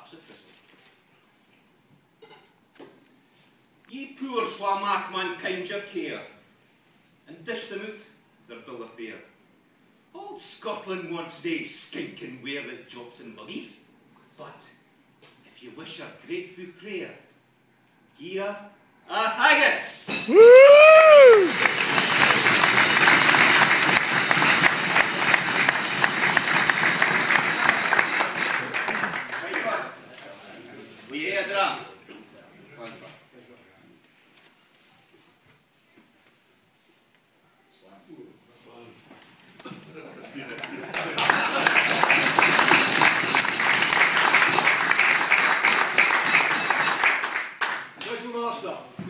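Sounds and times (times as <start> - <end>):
crowd applauding: 20.3 - 30.0, 40.6 - 48.0.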